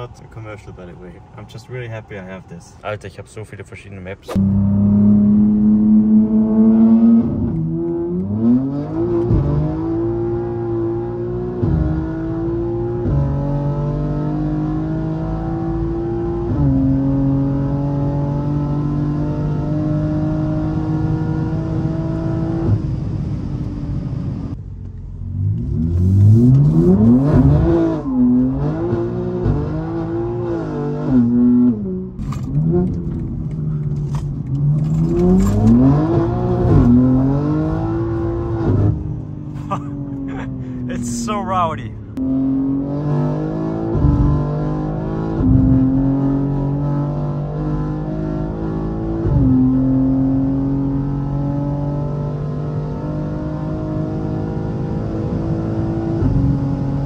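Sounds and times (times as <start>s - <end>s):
car engine revving: 4.2s - 24.0s, 25.2s - 57.0s.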